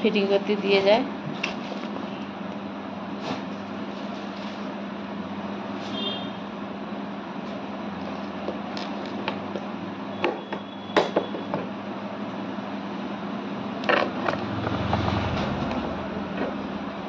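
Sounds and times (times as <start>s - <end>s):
steady background hum: 0.0s - 17.0s
objects clicking and knocking: 13.8s - 15.4s.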